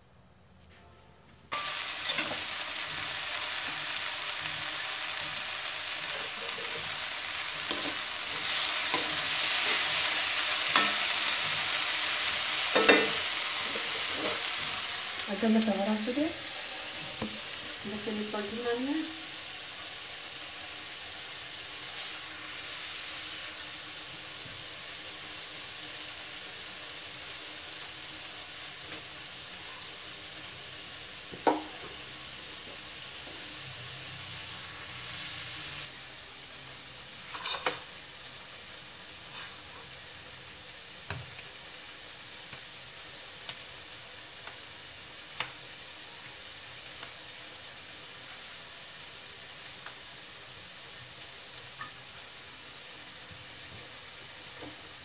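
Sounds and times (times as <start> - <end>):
vegetables sizzling in a pan: 1.5 - 55.0
kitchen utensils clinking: 12.7 - 13.2, 37.3 - 37.9.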